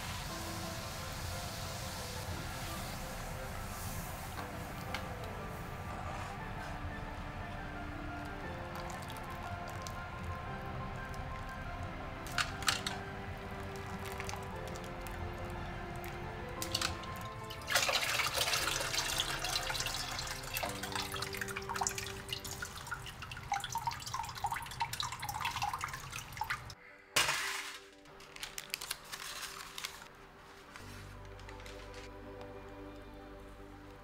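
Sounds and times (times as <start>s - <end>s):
background music: 0.0s - 34.0s
water splashing and dripping: 8.2s - 26.8s.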